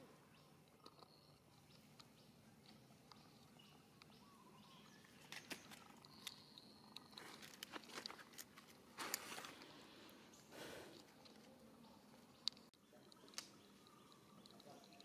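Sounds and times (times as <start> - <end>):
faint bird chirp: 0.0 - 8.2, 9.2 - 15.0
dry leaves crackling: 7.2 - 9.7.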